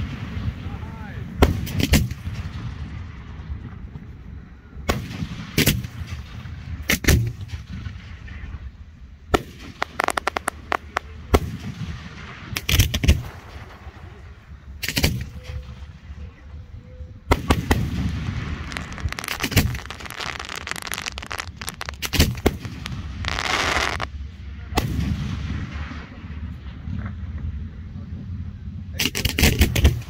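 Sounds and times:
firework booms: 0.0s - 16.2s, 17.3s - 24.1s, 24.7s - 26.9s
low rumbling echoes: 0.0s - 29.0s
firework crackles: 4.9s - 16.2s, 17.3s - 24.2s.

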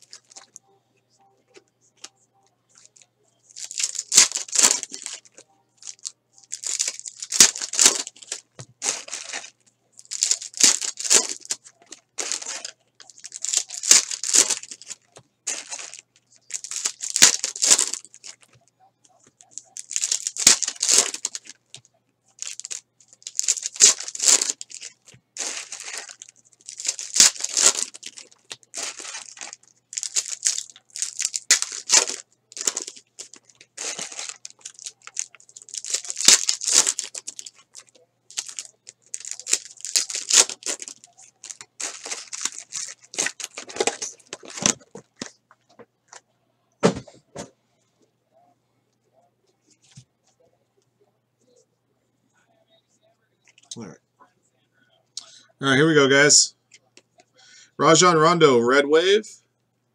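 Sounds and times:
foil wrappers torn and crinkled: 2.8s - 18.5s, 19.4s - 21.6s, 22.4s - 45.3s.

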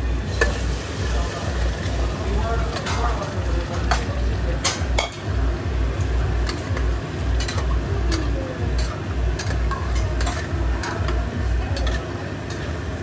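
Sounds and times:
curry boiling: 0.0s - 13.0s
ladle clinking and scraping pot: 6.4s - 12.8s.

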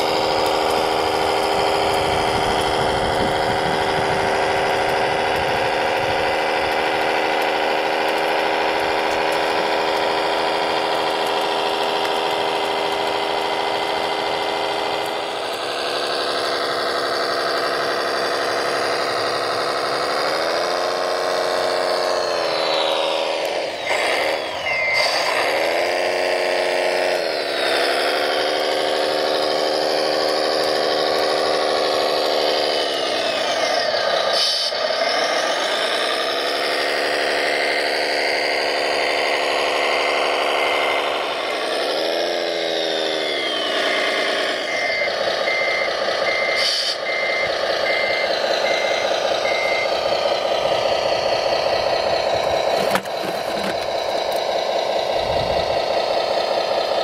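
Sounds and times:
model truck engine running: 0.0s - 57.0s
reversing beeper: 21.4s - 55.7s.

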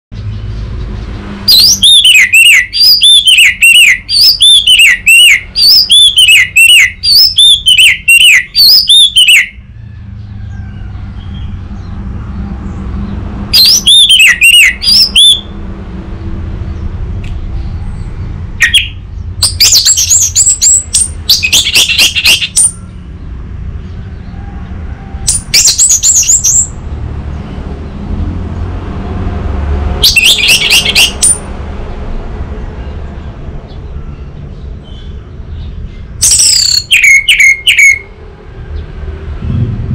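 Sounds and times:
thrush singing whistled notes: 1.4s - 9.7s, 13.5s - 15.6s, 18.6s - 23.1s, 25.2s - 26.8s, 30.0s - 31.5s, 35.8s - 38.1s.

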